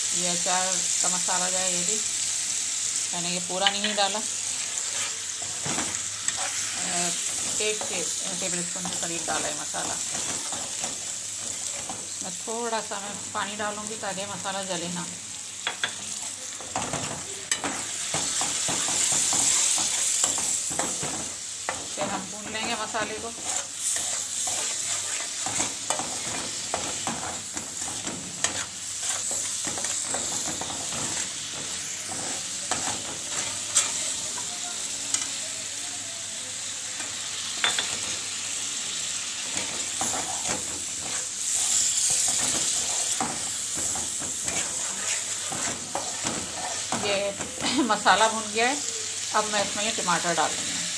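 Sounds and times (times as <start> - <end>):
spices sizzling in oil: 0.0 - 50.9
metal spoon scraping pan: 3.5 - 12.1, 15.6 - 34.5, 39.5 - 47.6.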